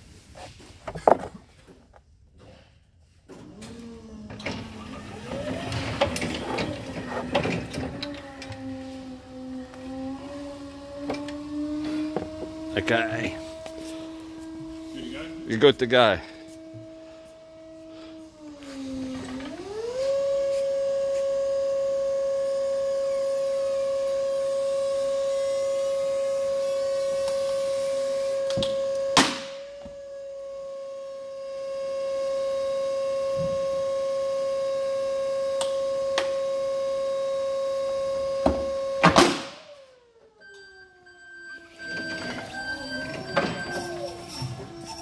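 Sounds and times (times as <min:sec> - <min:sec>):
forklift whining: 0:03.3 - 0:45.0.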